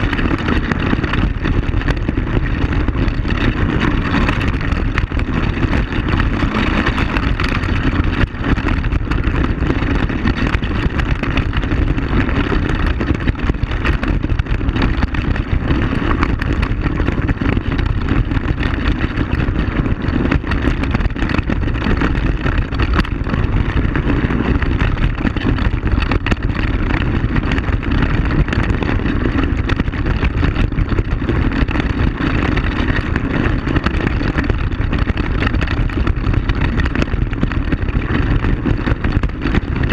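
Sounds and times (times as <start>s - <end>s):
knocks and rattles from bumps: 0.0s - 39.9s
quad bike engine running: 0.0s - 39.9s.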